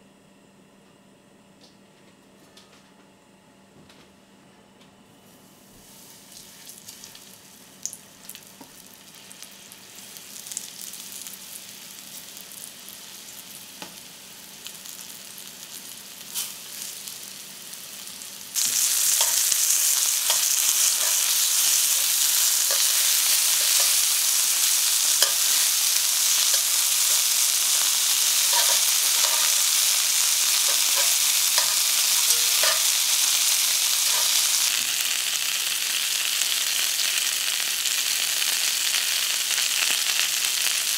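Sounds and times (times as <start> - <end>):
chicken frying in hot oil: 5.8 - 40.9
metal tongs clicking: 28.5 - 29.6, 30.6 - 32.9.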